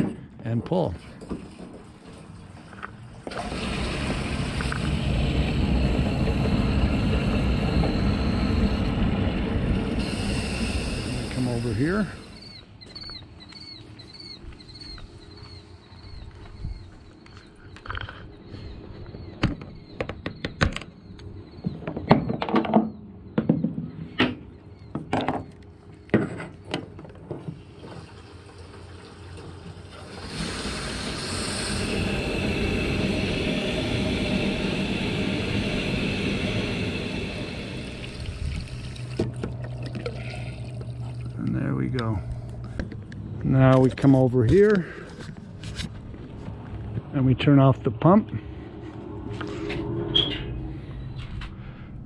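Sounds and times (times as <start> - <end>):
fuel pouring into tank: 1.3 - 12.6, 27.6 - 41.9
faint high chirp: 12.2 - 20.5.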